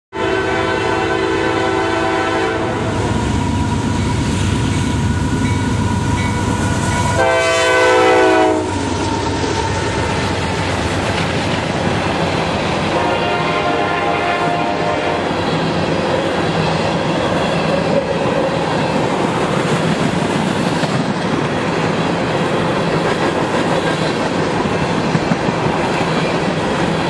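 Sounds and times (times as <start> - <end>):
locomotive horn: 0.1 - 3.9, 5.8 - 10.1, 12.8 - 15.4
locomotive engines rumbling: 1.2 - 27.0
train wheels on rails: 1.2 - 27.0.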